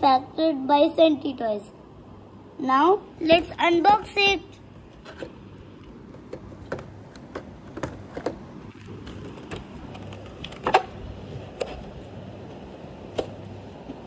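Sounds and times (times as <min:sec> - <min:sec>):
packaging clicks and taps: 0:05.0 - 0:11.9
loud plastic clack: 0:06.1 - 0:11.9.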